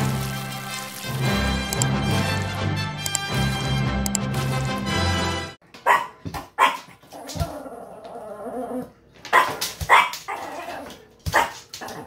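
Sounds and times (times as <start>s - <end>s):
small dog barking: 5.8s - 6.9s, 9.3s - 10.6s, 11.3s - 12.0s.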